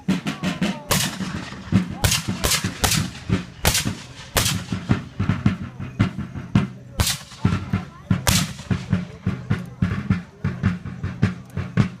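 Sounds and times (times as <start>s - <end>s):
musket shots: 0.9s - 5.1s, 7.0s - 9.0s.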